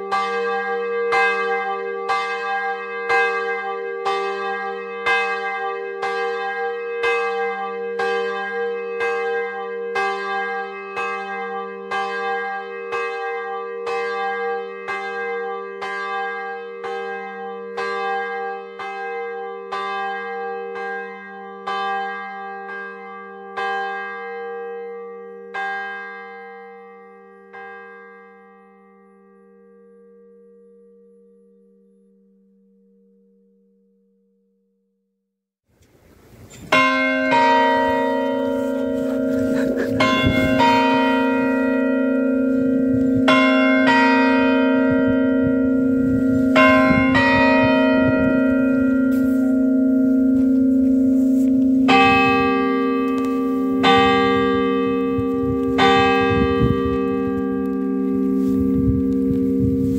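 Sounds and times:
church bell ringing: 0.0 - 32.0, 36.5 - 59.9
low bell hum: 28.2 - 35.0, 36.5 - 59.9.

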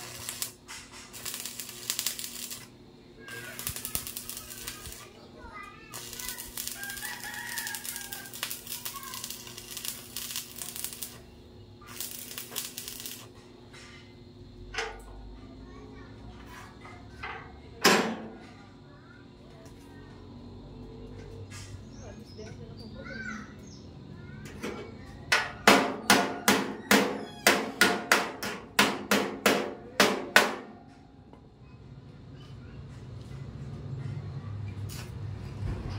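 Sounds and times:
welding arc crackling: 0.0 - 5.2, 5.9 - 13.4
hammer striking metal: 25.3 - 30.7.

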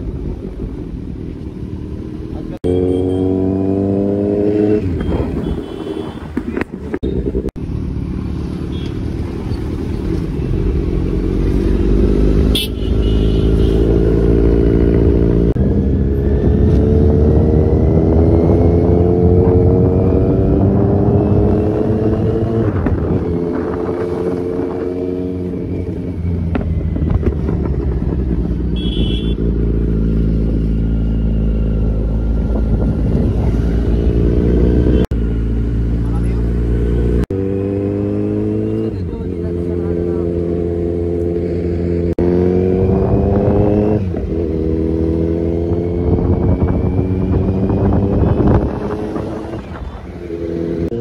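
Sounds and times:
motorcycle engine accelerating: 0.0 - 5.9, 9.2 - 51.0
wind on microphone: 14.2 - 29.1, 31.8 - 34.9, 42.4 - 51.0.

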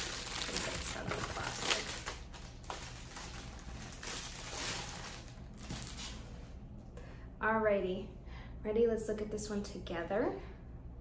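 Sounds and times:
paper packing rustling: 0.0 - 6.5.

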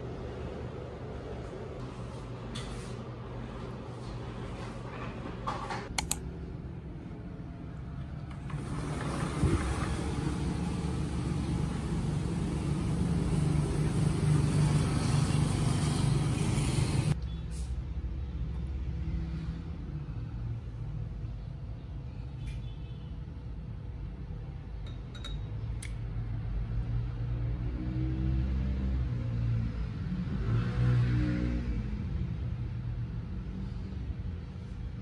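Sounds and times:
road vehicle rumble and hiss: 6.6 - 22.6, 30.1 - 35.0.

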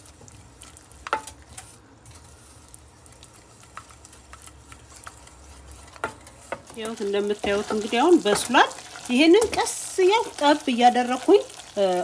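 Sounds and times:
spoon scraping pot: 3.4 - 9.8.

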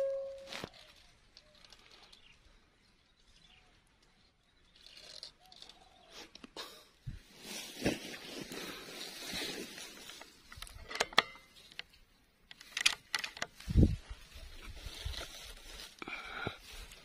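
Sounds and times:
brief high-pitched sound: 0.0 - 0.7
rifle handling clicks and knocks: 10.2 - 13.6.

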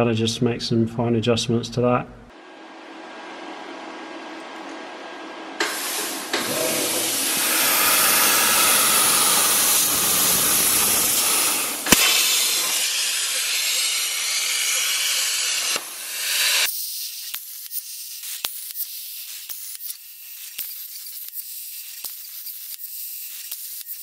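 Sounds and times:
plasma cutter hissing: 5.6 - 24.0
sharp crack: 8.0 - 16.7.

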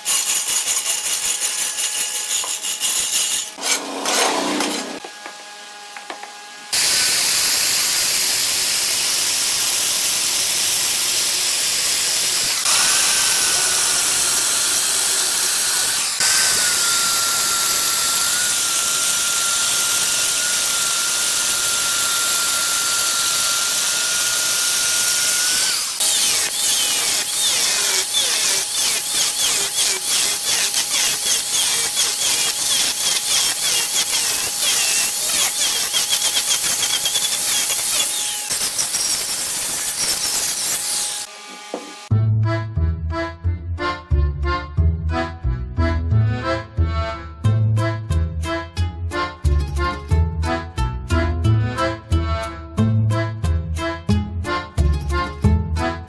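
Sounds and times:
angle grinder grinding wood: 0.0 - 42.1
power cutter high whine: 3.6 - 42.1.

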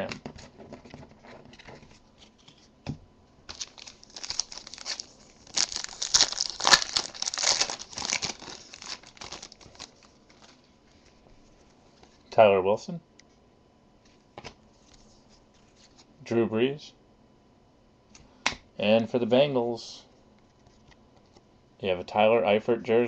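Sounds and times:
foil wrapper crackling: 3.5 - 10.6.

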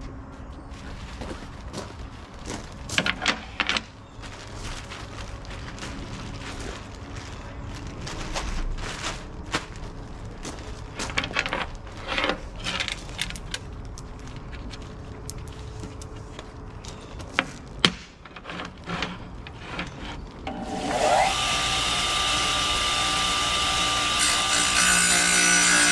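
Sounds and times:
plastic bag crinkling: 3.8 - 17.0.

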